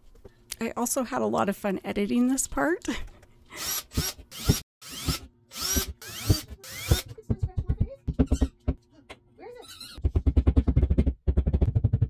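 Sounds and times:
cordless drill boring into wall: 0:03.6 - 0:07.1.

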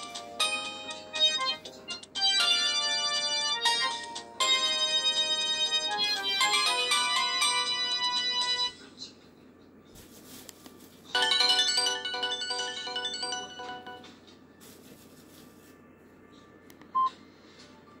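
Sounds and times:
phone ringtone melodies: 0:00.0 - 0:08.8, 0:11.2 - 0:14.1.

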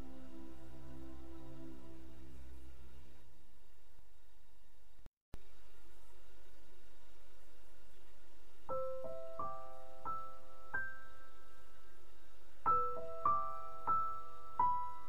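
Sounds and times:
slow piano notes: 0:00.0 - 0:02.8, 0:08.7 - 0:15.0.

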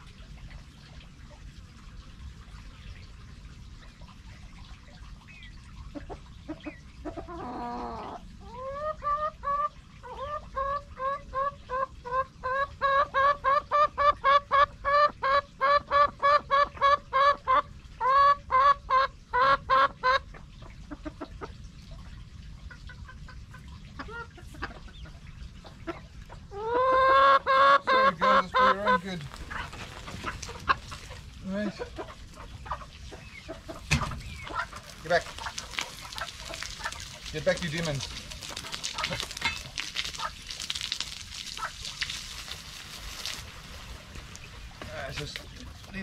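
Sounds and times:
hen clucking: 0:05.3 - 0:21.6, 0:22.6 - 0:42.5.

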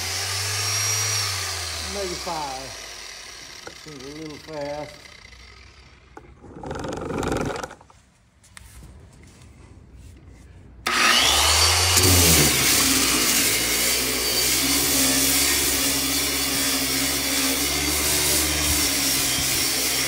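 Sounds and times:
electric sander grinding paint: 0:00.0 - 0:07.9, 0:10.9 - 0:20.0.

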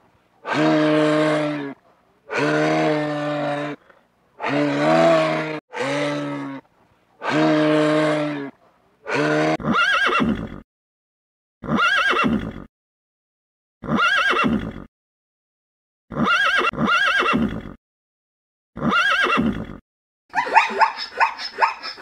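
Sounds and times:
low drawn-out animal calls: 0:00.4 - 0:10.6
horses neighing: 0:04.4 - 0:06.6, 0:09.1 - 0:10.6, 0:16.1 - 0:17.8, 0:18.8 - 0:19.8.

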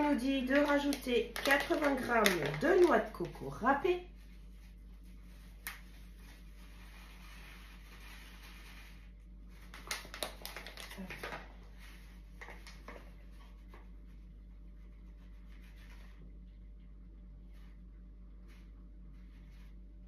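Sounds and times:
steady low hum: 0:00.0 - 0:20.0
grated coconut rustling into bowl: 0:04.1 - 0:10.9.

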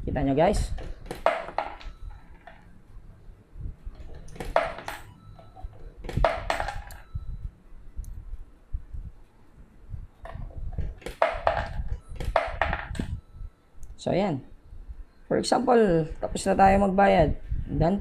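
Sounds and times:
coins clinking into machine: 0:04.0 - 0:07.1.

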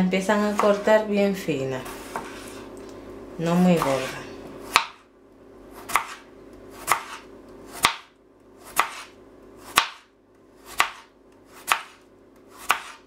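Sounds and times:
knife slicing potato: 0:00.3 - 0:01.0, 0:01.8 - 0:02.7, 0:03.6 - 0:05.0, 0:05.7 - 0:13.0.

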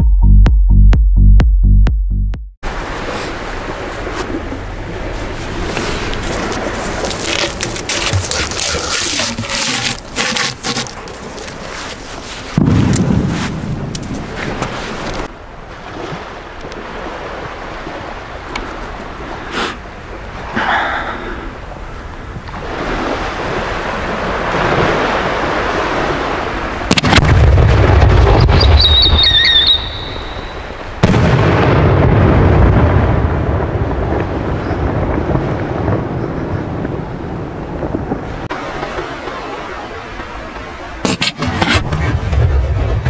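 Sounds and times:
firework whistle: 0:28.3 - 0:30.7
firework launch bang: 0:31.0 - 0:32.4.

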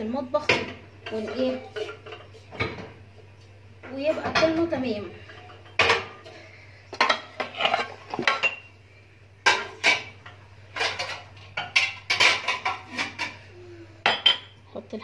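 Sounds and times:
pots and containers clattering: 0:00.5 - 0:03.0, 0:03.9 - 0:06.4, 0:07.0 - 0:08.8, 0:09.4 - 0:14.5.

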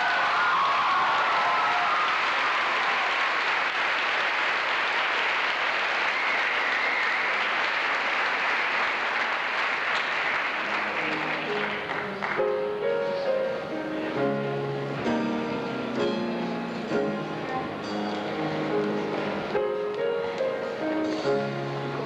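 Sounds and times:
audience applauding: 0:00.0 - 0:12.8
soft music: 0:10.6 - 0:22.0.

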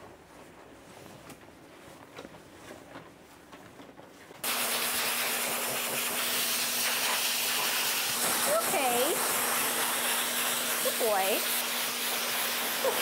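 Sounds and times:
dog dryer rushing hiss: 0:04.4 - 0:13.0.

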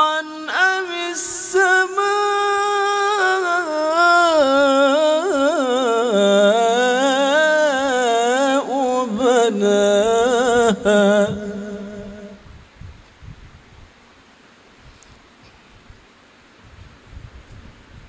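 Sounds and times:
man chanting melodically: 0:00.0 - 0:12.4.

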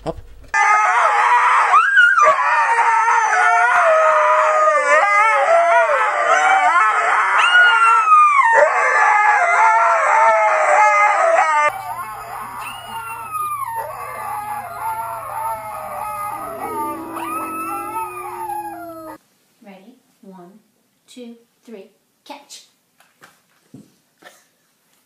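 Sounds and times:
huskies howling: 0:00.6 - 0:19.2
steady low hum: 0:11.7 - 0:19.2.

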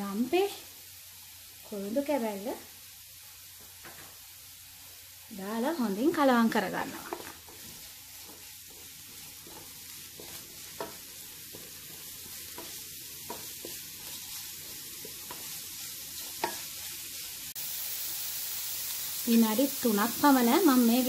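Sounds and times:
food sizzling in oil: 0:00.0 - 0:21.0
wooden spatula scraping: 0:06.6 - 0:17.3
spatula knocking against pan: 0:09.4 - 0:13.8, 0:16.4 - 0:16.6.

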